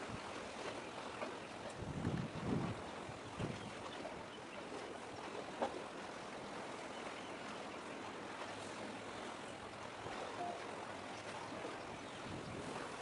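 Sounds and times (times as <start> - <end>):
sea waves: 0.0 - 13.0
wind: 0.0 - 13.0.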